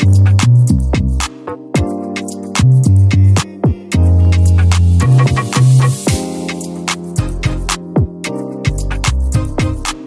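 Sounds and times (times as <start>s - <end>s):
deep bass line: 0.0s - 1.3s, 2.6s - 6.1s, 7.2s - 7.9s, 8.7s - 10.0s
programmed drum beat: 0.0s - 10.0s.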